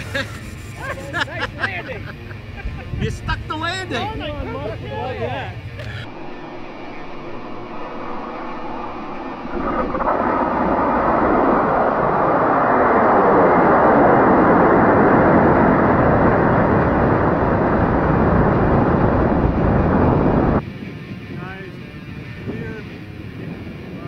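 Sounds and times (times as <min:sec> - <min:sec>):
rocket motor roaring: 0:04.3 - 0:20.6.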